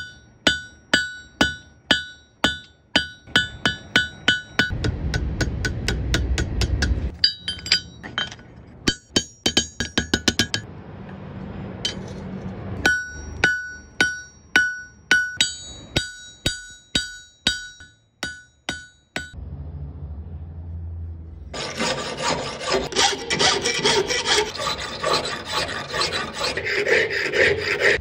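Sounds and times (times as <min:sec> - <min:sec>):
anvil ringing: 0:00.0 - 0:10.7, 0:12.8 - 0:19.4
hammer striking steel on anvil: 0:00.0 - 0:10.7, 0:12.8 - 0:19.4
low rumble: 0:04.7 - 0:07.1, 0:19.4 - 0:21.6.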